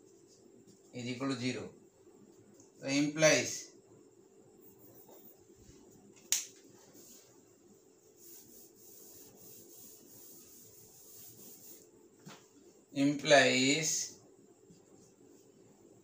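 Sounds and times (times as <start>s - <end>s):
cloth rubbing on whiteboard: 4.6s - 5.8s, 6.8s - 11.9s
sharp click: 6.2s - 6.5s.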